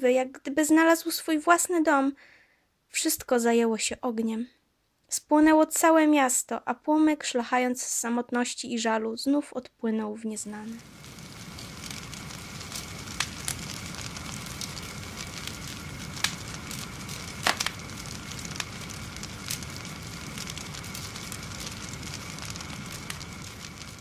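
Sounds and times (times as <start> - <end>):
fire crackling and popping: 10.4 - 24.0.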